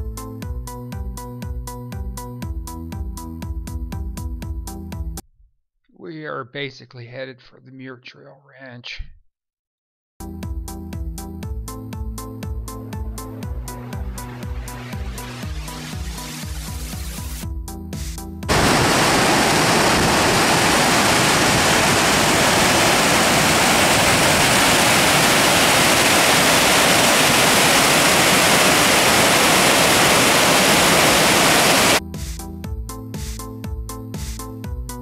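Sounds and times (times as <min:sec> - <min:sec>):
electronic background music: 0:12.7 - 0:17.4
fast-flowing creek water: 0:22.5 - 0:32.0.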